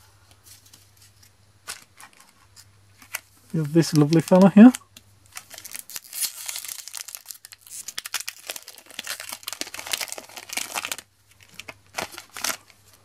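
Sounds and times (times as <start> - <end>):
foil wrapper crinkling and tearing: 3.0 - 13.0.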